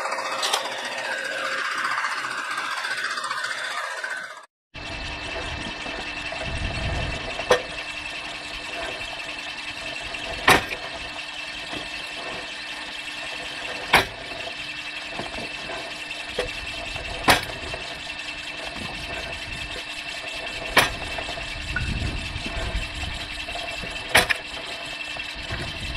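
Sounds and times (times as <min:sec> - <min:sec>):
splitter mechanical hum and whine: 0:00.0 - 0:25.9
blade splitting wood: 0:07.4 - 0:25.9.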